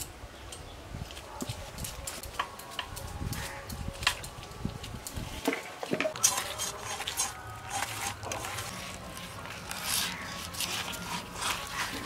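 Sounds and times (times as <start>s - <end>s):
metal bowls and utensils clinking: 5.4s - 12.0s.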